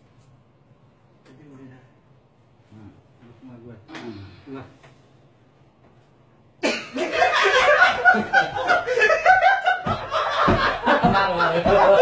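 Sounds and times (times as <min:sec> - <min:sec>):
people laughing: 0:06.9 - 0:12.0.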